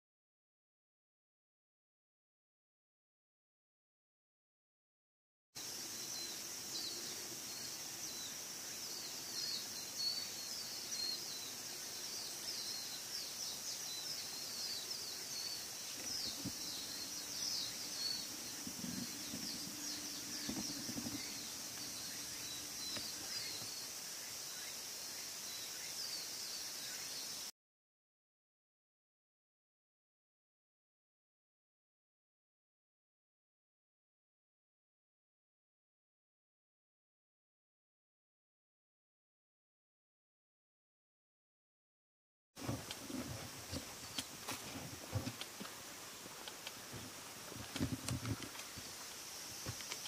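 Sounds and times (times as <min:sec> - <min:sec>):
small birds chirping: 0:05.6 - 0:27.5, 0:42.6 - 0:50.0.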